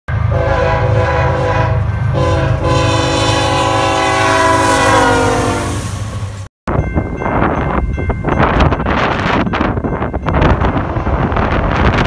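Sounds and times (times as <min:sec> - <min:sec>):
locomotive air horn blowing: 0:00.2 - 0:06.0.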